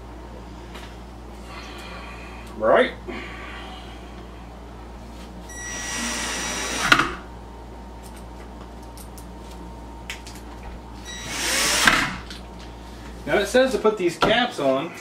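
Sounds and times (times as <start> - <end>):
cordless drill motor whine: 5.5 - 7.3, 11.0 - 12.3.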